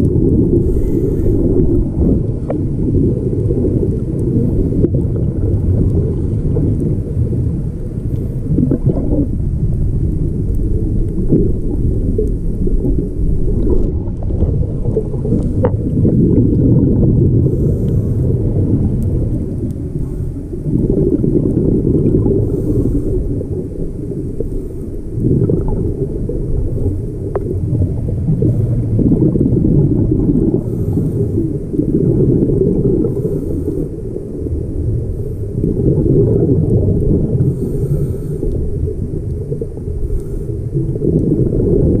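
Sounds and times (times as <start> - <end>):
muffled underwater exhaled bubbles: 0.0 - 42.0
faint regulator hiss: 0.5 - 2.7, 17.3 - 20.6, 22.4 - 27.5, 33.0 - 35.8, 37.0 - 41.0.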